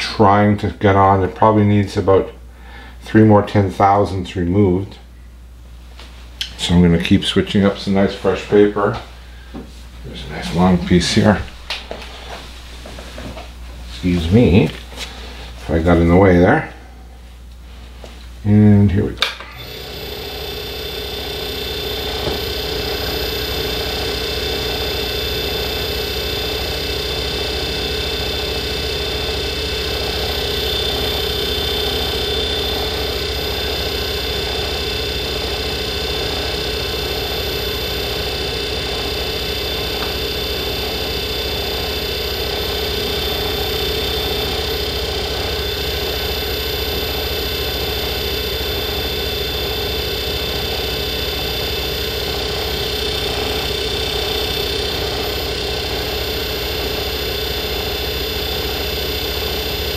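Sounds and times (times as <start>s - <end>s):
metal lathe humming and whining: 19.6s - 59.9s.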